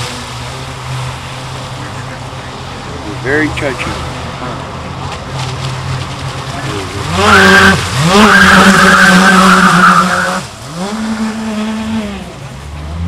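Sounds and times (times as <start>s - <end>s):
loud hiss of passing boat: 0.0s - 13.0s
electric boat motor whining: 6.7s - 13.0s.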